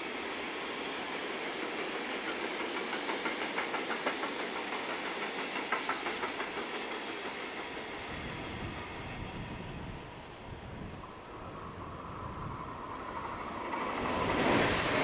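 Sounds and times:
low train rumble: 0:00.0 - 0:15.0
steady hiss: 0:00.0 - 0:15.0
train wheels clicking over rail joints: 0:01.4 - 0:08.6.

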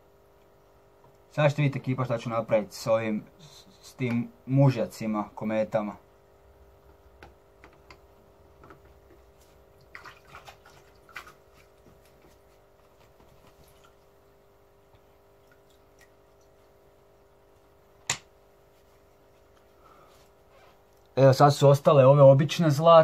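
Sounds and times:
aquarium equipment hum: 0:00.0 - 0:23.0
water dripping and splashing: 0:09.4 - 0:12.6, 0:13.2 - 0:14.2, 0:14.9 - 0:16.8.

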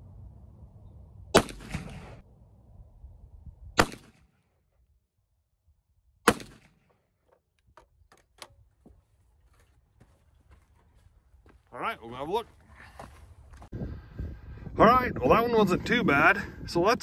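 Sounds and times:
pistol shots: 0:01.3 - 0:02.2, 0:03.8 - 0:04.3, 0:06.2 - 0:06.9.

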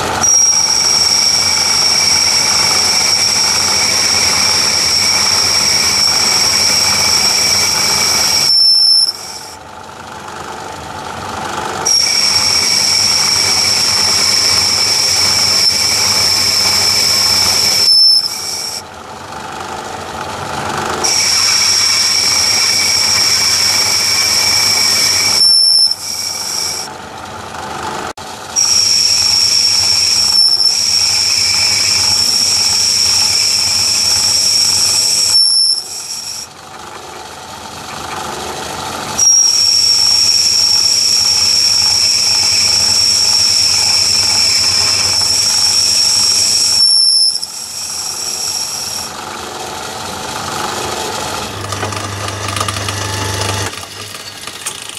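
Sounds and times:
lathe cutting metal squeal: 0:00.0 - 0:09.6, 0:11.6 - 0:18.9, 0:20.5 - 0:26.9, 0:28.4 - 0:36.6, 0:39.0 - 0:54.9
lathe running: 0:00.0 - 0:54.9.

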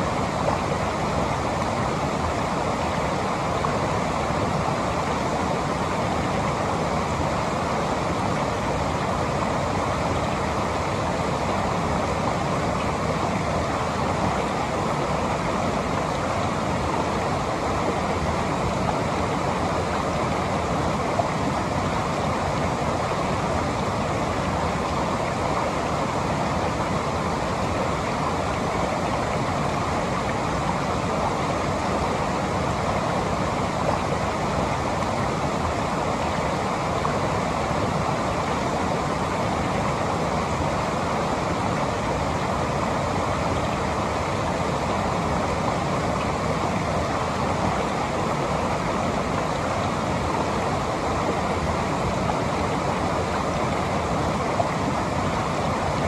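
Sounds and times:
river and waterfall rushing: 0:00.0 - 0:56.0.

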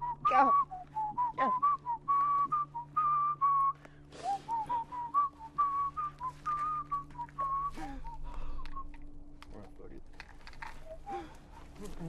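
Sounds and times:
person whistling a tune: 0:00.0 - 0:08.9
faint low hum: 0:00.0 - 0:12.0.

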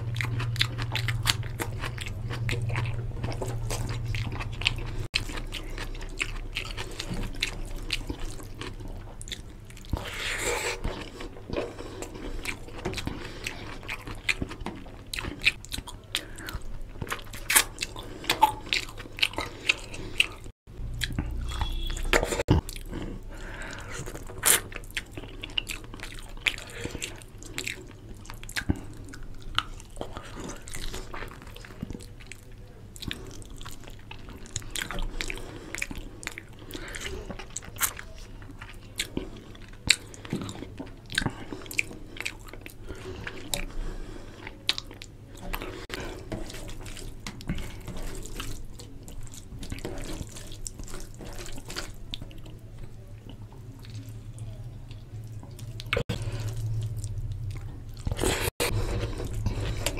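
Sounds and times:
chewing and lip smacking: 0:00.0 - 0:59.9.

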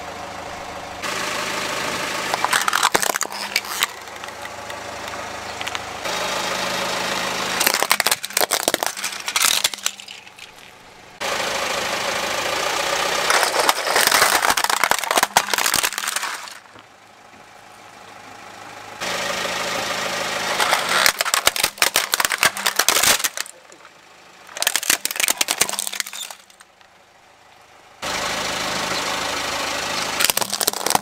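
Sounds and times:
car engine idling: 0:00.0 - 0:31.0
plastic toys crunching under tyre: 0:02.3 - 0:05.9, 0:07.6 - 0:10.8, 0:13.2 - 0:16.8, 0:20.4 - 0:23.9, 0:24.5 - 0:26.9, 0:30.2 - 0:31.0.

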